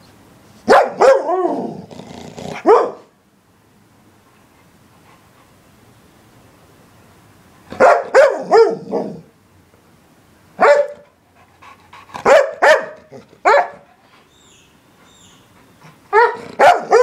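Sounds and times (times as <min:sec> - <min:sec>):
dog yelping barks: 0:00.7 - 0:01.7, 0:02.5 - 0:03.1, 0:07.7 - 0:09.2, 0:10.6 - 0:11.1, 0:12.2 - 0:13.9, 0:16.1 - 0:17.0.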